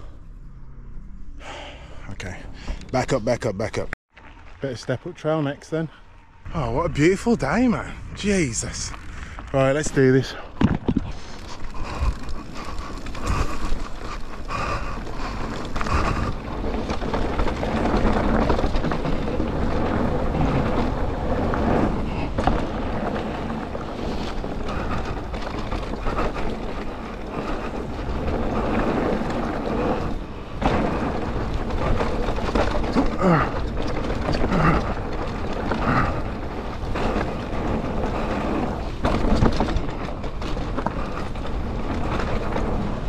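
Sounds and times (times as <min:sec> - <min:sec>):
tyre rumble: 0:07.0 - 0:43.0
bike knocks and rattles: 0:10.4 - 0:43.0.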